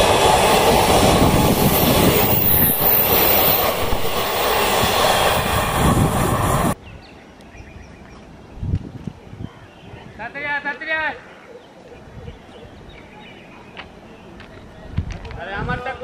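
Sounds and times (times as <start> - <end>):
train wheels rumbling on rails: 0.0 - 6.8.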